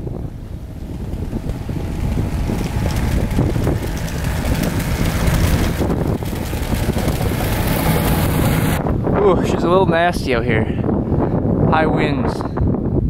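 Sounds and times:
wind buffeting microphone: 0.0s - 13.0s
tracked snow plow engine running: 0.2s - 8.8s.

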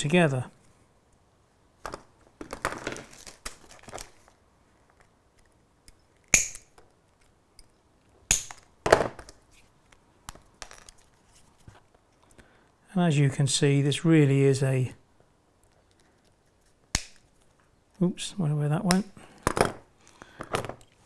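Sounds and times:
clicks and rustles of handling: 1.8s - 12.8s, 15.6s - 18.1s.

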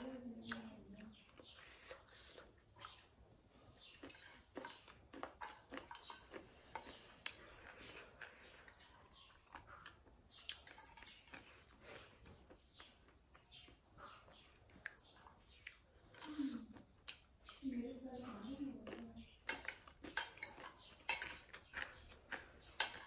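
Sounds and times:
chewing with mouth clicks: 0.4s - 23.0s
fork tapping and scraping plate: 4.0s - 7.0s, 18.9s - 23.0s.

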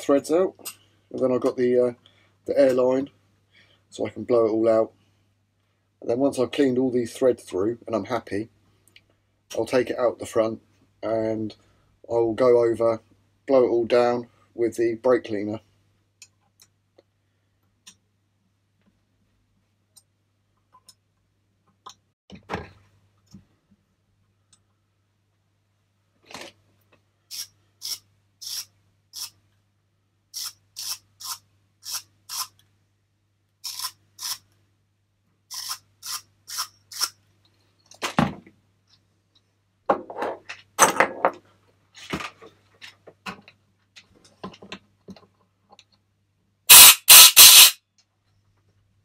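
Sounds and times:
tools clattering on bench: 39.9s - 41.4s
compressed air blasts: 46.7s - 47.8s.

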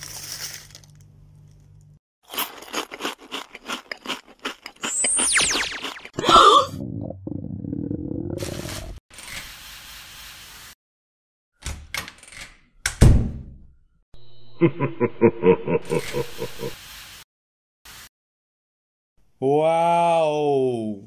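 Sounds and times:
fast pulsing sound: 5.0s - 6.1s
hiss sound effect: 16.1s - 17.2s.

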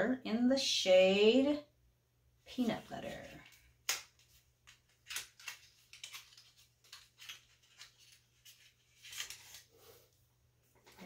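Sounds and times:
packaging crinkling and clicking: 3.9s - 9.7s.

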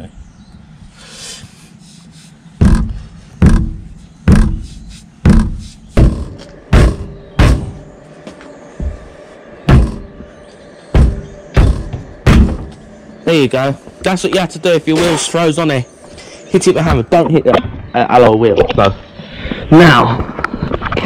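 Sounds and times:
sledgehammer striking tyre: 2.6s - 4.6s, 5.2s - 7.9s, 9.7s - 10.1s, 10.9s - 12.8s.

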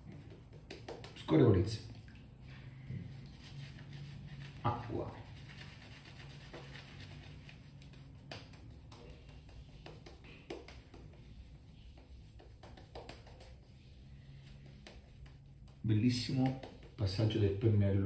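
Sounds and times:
small taps and rustles: 0.0s - 1.3s, 12.5s - 13.6s, 14.8s - 17.2s.

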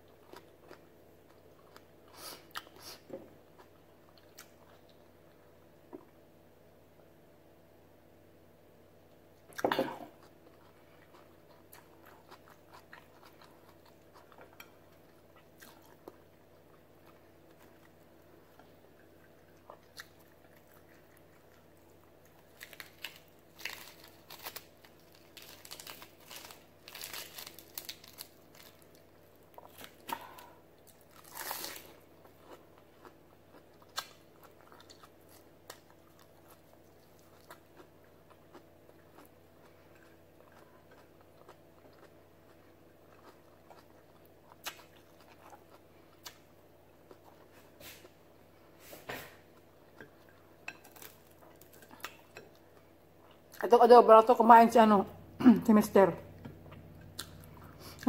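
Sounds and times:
chewing crisp lettuce: 0.0s - 5.5s, 10.2s - 53.6s, 56.3s - 58.0s.

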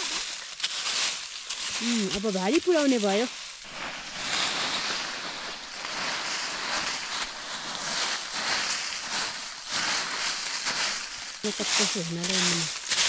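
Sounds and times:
dry leaves rustling: 0.0s - 13.0s.

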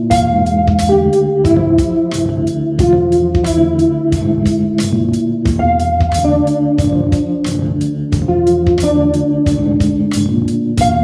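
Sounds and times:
organ-like chords and melody: 0.0s - 11.0s
steady drum beat: 0.0s - 11.0s.

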